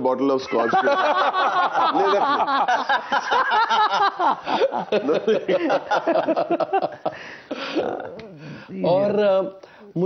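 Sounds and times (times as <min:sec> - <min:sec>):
men laughing: 0:00.5 - 0:08.2.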